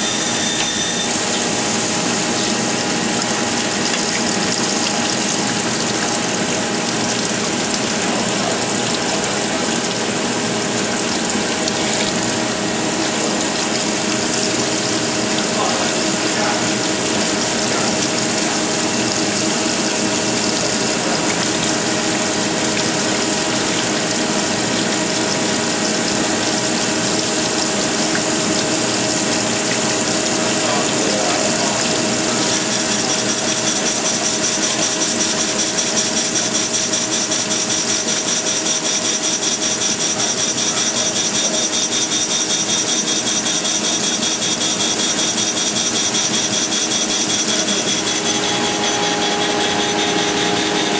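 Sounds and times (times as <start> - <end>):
high whining tones: 0.0 - 5.6, 42.6 - 50.9
coolant hiss: 0.0 - 50.9
surface grinder grinding: 45.5 - 50.9.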